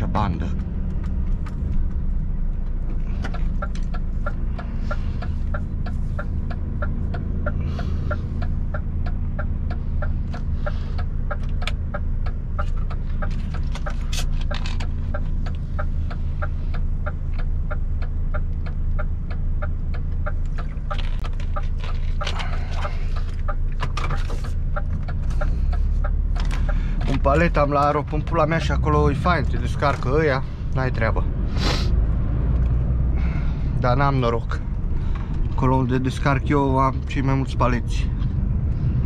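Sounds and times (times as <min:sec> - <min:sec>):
diesel engine drone: 0:00.0 - 0:39.0
turn-signal relay ticking: 0:00.1 - 0:31.2.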